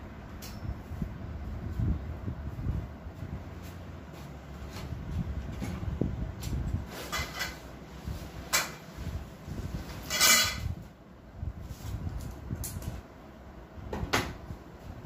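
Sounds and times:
tent fabric rustling and swishing: 1.6s - 10.1s.

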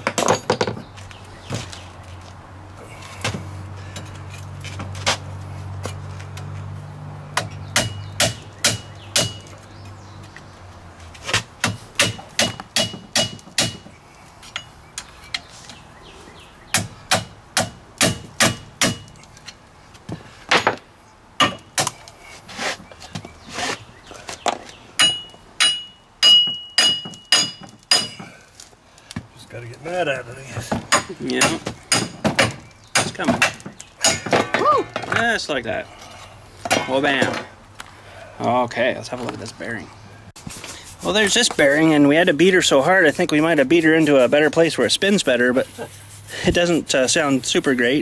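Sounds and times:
hammer striking steel punch: 7.4s - 9.5s, 11.6s - 13.9s, 16.8s - 19.1s, 25.0s - 28.2s, 30.9s - 34.6s.

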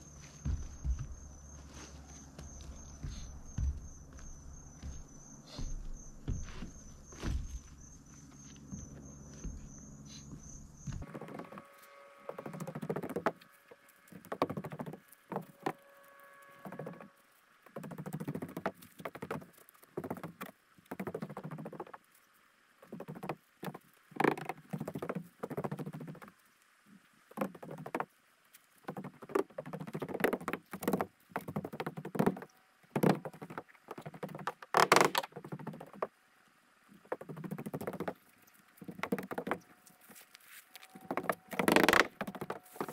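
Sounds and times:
footsteps shuffling on roof deck: 0.0s - 11.0s.

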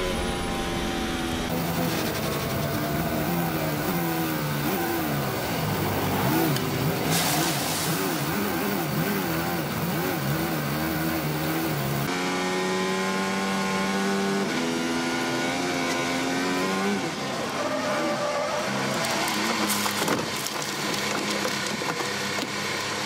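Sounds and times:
rush of noise: 0.0s - 9.0s
racing car engine: 0.0s - 23.0s.

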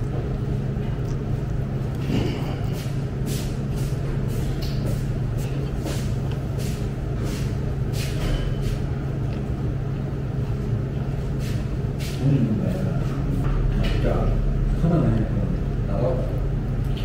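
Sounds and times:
chewing: 0.0s - 3.0s
steady low hum: 0.0s - 17.0s.

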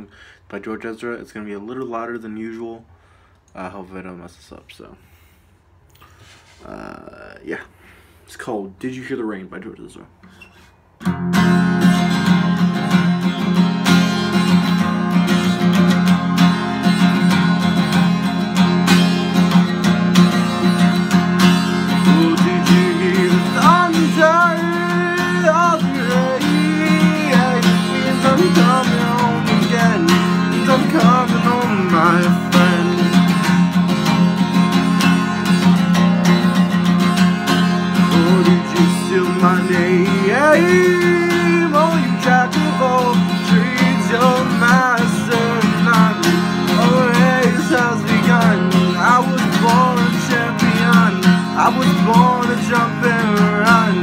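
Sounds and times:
acoustic guitar strumming: 10.3s - 54.0s
man singing: 20.4s - 33.8s, 37.8s - 54.0s.

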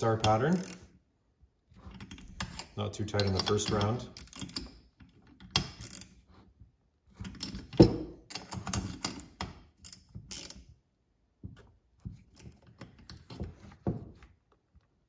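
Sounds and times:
ratchet wrench clicking: 3.4s - 4.7s, 5.7s - 6.1s, 9.8s - 10.6s.

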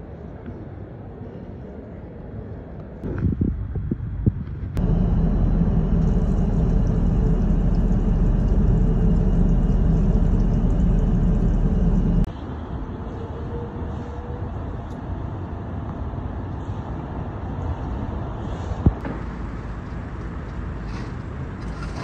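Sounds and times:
airplane cabin drone: 4.7s - 12.3s
sink tap running: 4.9s - 12.3s.

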